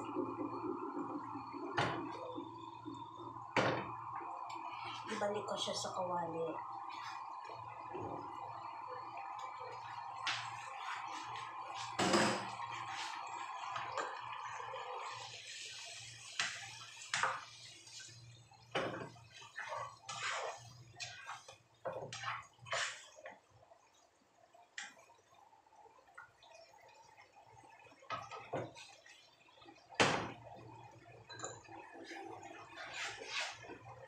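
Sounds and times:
stove background noise: 0.0 - 34.0
food sizzling in a wok: 10.4 - 23.2.

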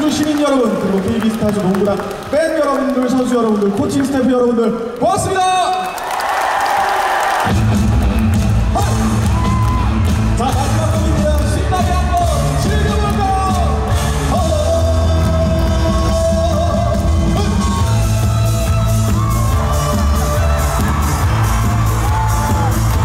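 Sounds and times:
band playing: 7.4 - 23.0
man singing through pa: 10.6 - 20.6.

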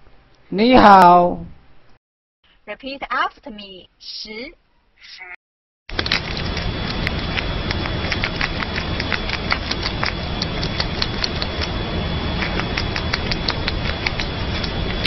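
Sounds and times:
squirrel chewing crisp clicks: 5.9 - 15.0.

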